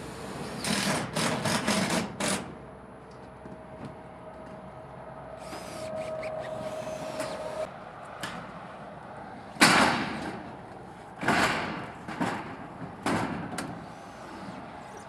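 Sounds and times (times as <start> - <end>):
steel roofing panels clattering: 11.2 - 14.6.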